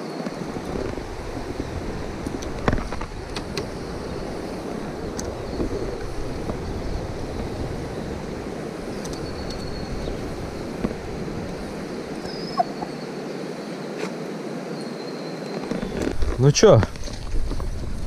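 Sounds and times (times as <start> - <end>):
river water flowing: 0.0 - 16.2
wind: 0.0 - 18.0
wind rumble on microphone: 0.2 - 13.1, 15.6 - 18.0
faint clicks: 9.0 - 9.7.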